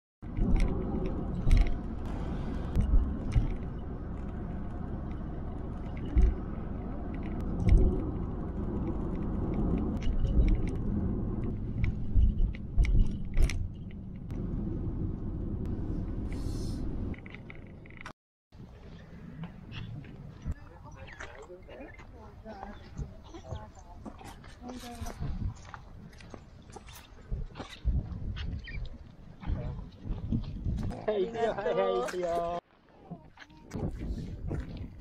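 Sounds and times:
car road rumble: 0:00.2 - 0:18.1.

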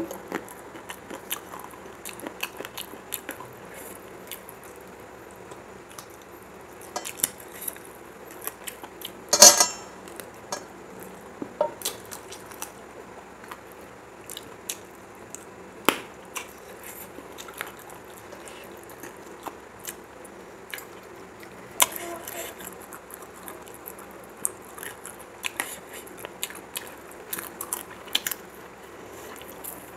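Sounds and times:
chewing and mouth clicks: 0:22.6 - 0:28.5.

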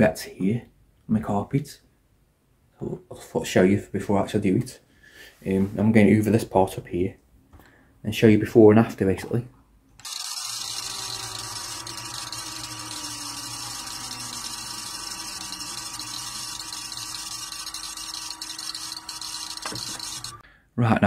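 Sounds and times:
vacuum cleaner running: 0:10.0 - 0:20.4.

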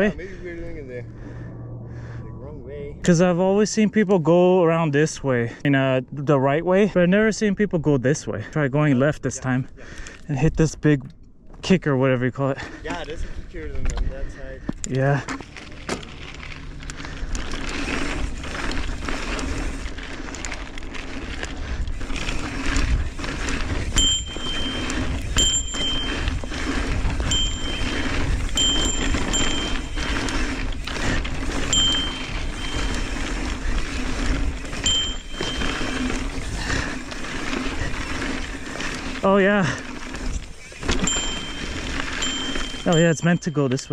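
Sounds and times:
knobby tyres on dirt: 0:00.0 - 0:43.9
wind on microphone: 0:21.7 - 0:36.8.

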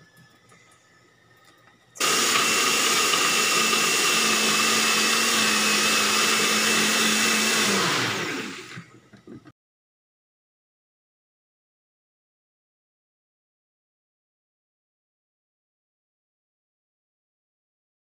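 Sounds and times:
blender whining: 0:02.0 - 0:09.5.

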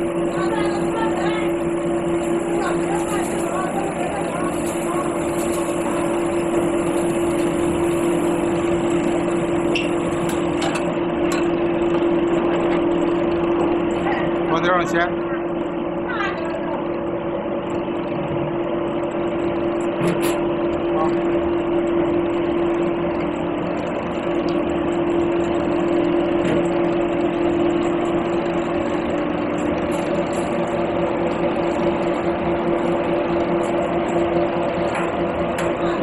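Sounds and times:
oil press machine humming: 0:00.0 - 0:36.0.

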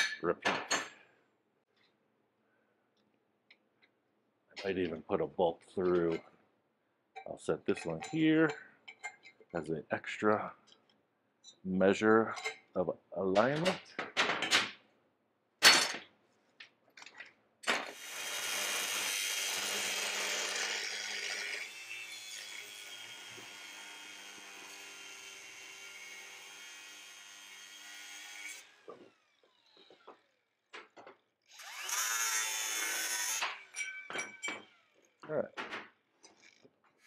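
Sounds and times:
power tool cutting metal: 0:17.9 - 0:29.9, 0:31.5 - 0:34.7.

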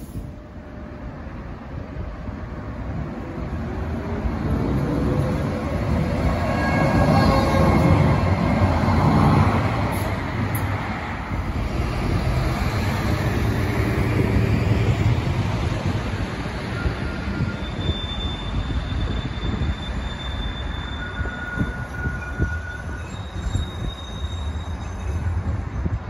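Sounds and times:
tram wheels rumbling on rail: 0:00.0 - 0:26.0
high wheel squeal: 0:16.5 - 0:25.5.

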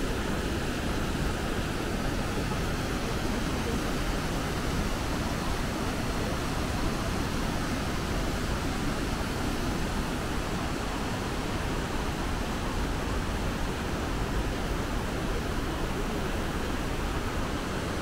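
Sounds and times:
waterfall roaring: 0:00.0 - 0:18.0.

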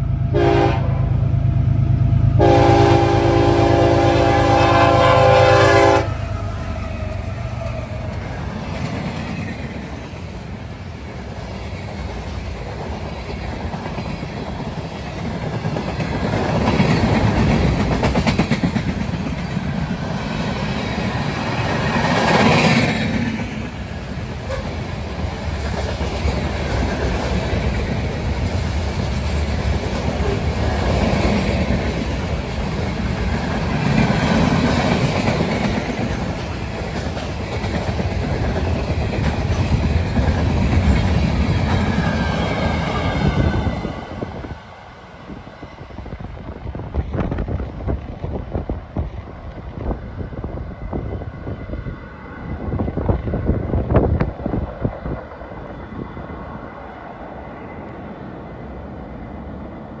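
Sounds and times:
freight train rumbling past: 0:00.0 - 1:00.0
train wheels clattering: 0:11.2 - 0:44.2.

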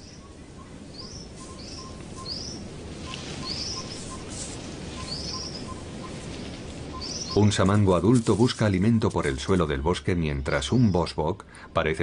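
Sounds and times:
bird high rising chirp: 0:00.0 - 0:07.4.

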